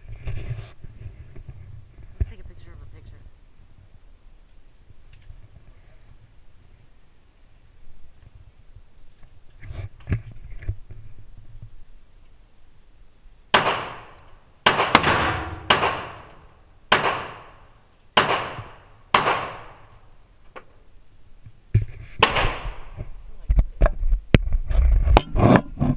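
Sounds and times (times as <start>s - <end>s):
rifle shots echoing indoors: 13.5s - 17.6s, 18.2s - 19.8s.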